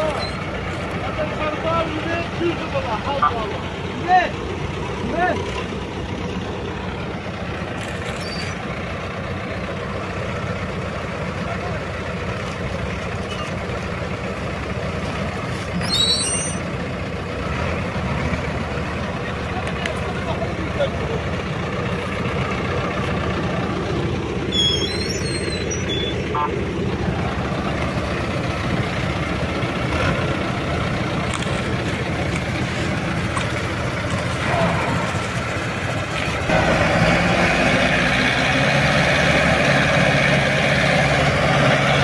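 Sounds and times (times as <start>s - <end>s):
brief high-pitched squeal: 0.0s - 0.4s, 8.1s - 8.6s, 15.8s - 16.7s, 24.5s - 26.5s
tractor diesel engines running: 0.0s - 42.0s.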